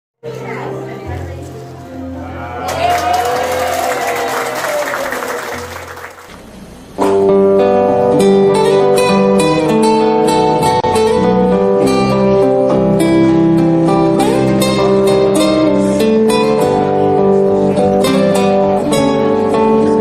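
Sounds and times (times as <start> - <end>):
acoustic guitar music: 0.2 - 4.0, 5.6 - 20.0
room noise with voices: 0.2 - 7.2.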